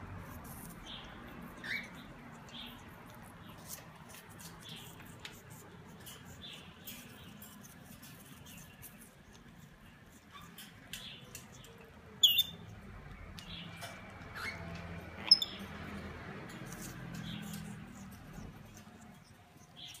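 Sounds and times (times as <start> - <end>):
birds pecking at fruit clicks: 0.2 - 20.0
parrot squeaks: 1.4 - 2.8, 12.2 - 12.7, 13.8 - 15.7.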